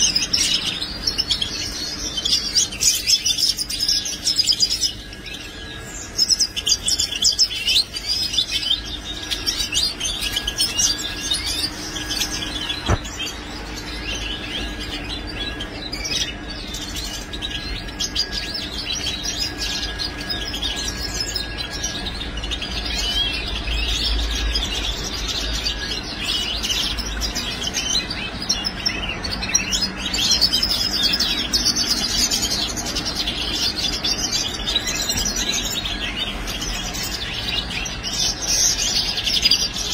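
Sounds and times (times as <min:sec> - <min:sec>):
goldfinches twittering and chirping: 0:00.0 - 0:39.9.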